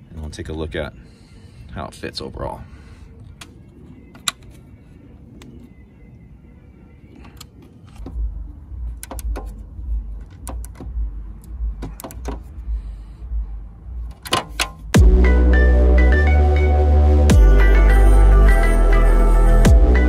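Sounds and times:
electronic music: 0:14.9 - 0:20.0
low rumble: 0:14.9 - 0:20.0.

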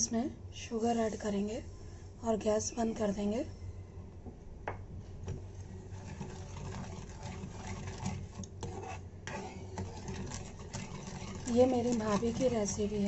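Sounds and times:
low steady hum: 0:00.0 - 0:13.0
spoon stirring and scraping pan: 0:05.6 - 0:13.0.

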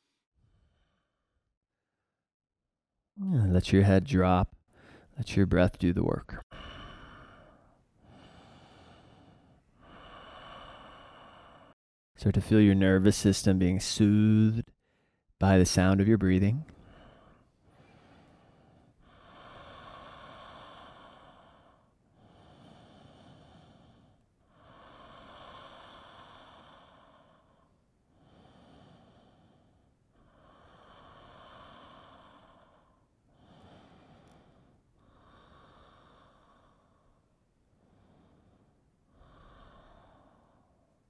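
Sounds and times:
slow breathing: 0:00.0 - 0:02.2, 0:04.7 - 0:05.2, 0:06.5 - 0:11.8, 0:14.8 - 0:15.3, 0:16.7 - 0:41.0.

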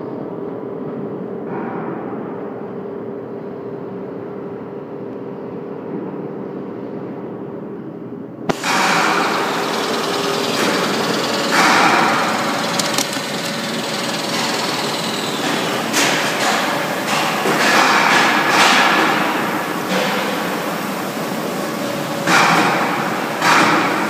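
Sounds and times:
milling machine cutting metal: 0:08.5 - 0:24.0.

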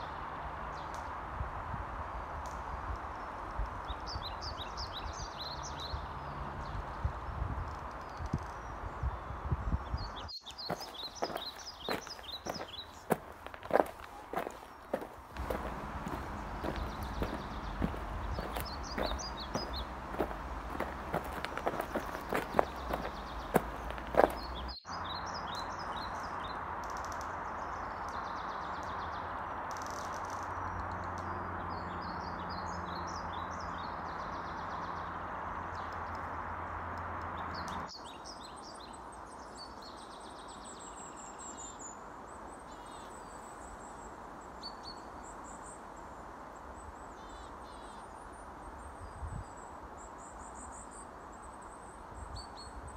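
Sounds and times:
small birds chirping: 0:02.5 - 0:36.4.

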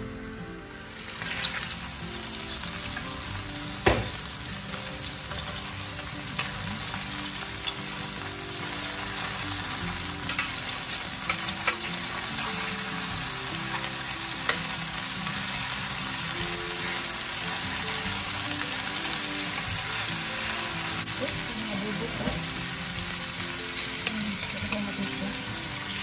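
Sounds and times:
chicken sizzling in hot oil: 0:00.8 - 0:26.0
metal tongs clicking against pan: 0:10.3 - 0:10.6, 0:11.2 - 0:11.9, 0:24.0 - 0:25.0.

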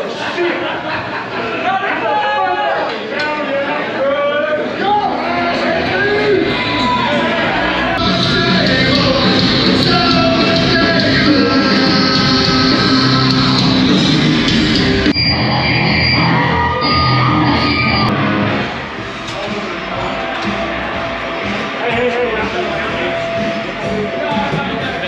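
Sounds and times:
live metal band playing: 0:05.6 - 0:25.0
person singing: 0:07.9 - 0:14.8.

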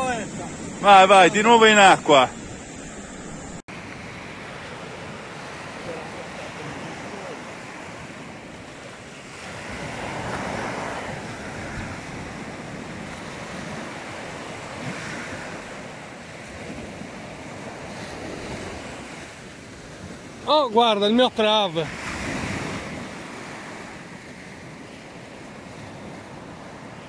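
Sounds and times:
wind on microphone: 0:00.0 - 0:05.8, 0:06.7 - 0:20.5
sea waves breaking on beach: 0:00.0 - 0:27.0.

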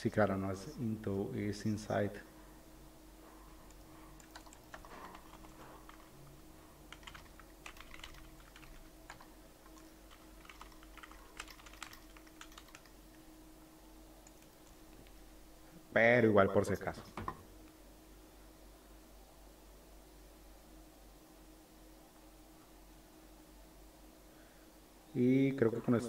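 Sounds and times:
faint computer keyboard typing: 0:03.7 - 0:06.1, 0:06.9 - 0:13.3, 0:14.2 - 0:15.2.

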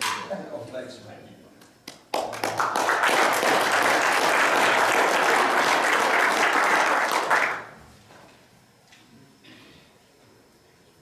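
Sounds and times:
people applauding: 0:01.9 - 0:07.8.

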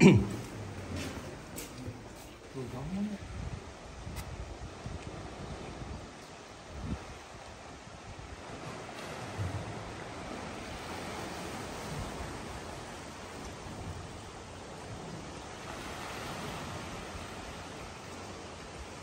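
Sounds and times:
waves washing over rocky shore: 0:06.8 - 0:19.0.

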